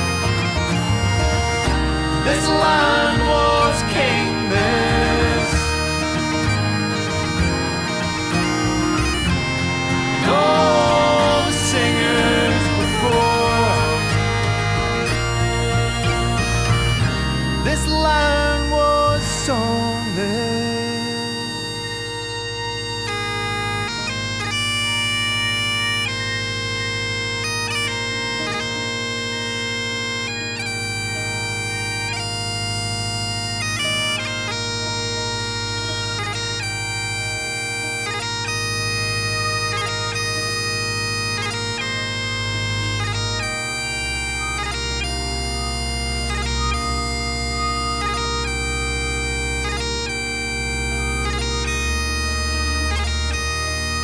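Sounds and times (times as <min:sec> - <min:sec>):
bagpipes playing a melody: 0:00.0 - 0:54.0
deep bass note: 0:35.7 - 0:54.0.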